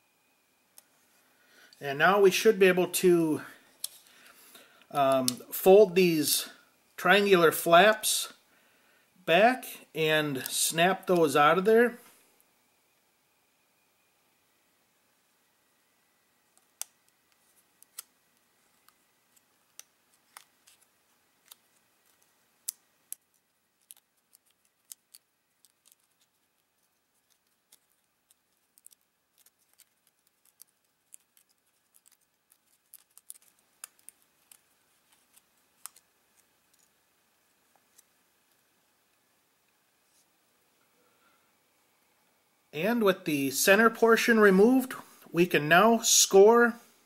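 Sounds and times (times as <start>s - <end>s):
paper crackling and clicking: 18.7s - 36.9s.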